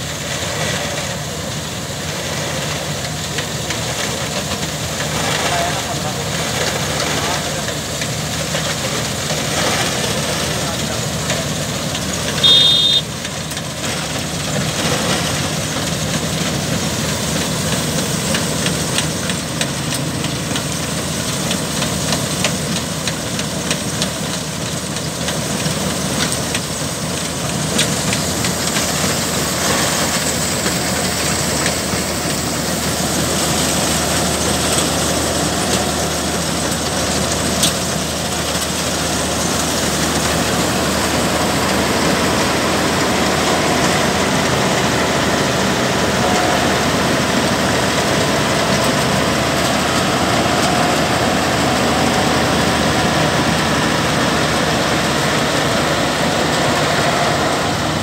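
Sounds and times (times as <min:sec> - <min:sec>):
combine harvester running: 0:00.0 - 0:58.0
high-pitched tone: 0:12.4 - 0:13.1.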